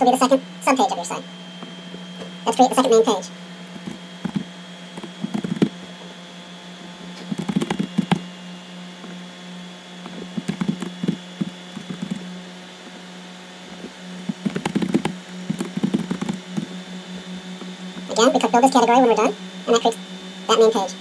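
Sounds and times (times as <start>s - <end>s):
low electrical hum: 0.0s - 21.0s
keyboard typing clicks: 3.8s - 5.7s, 7.2s - 8.2s, 10.3s - 12.2s, 14.2s - 16.7s.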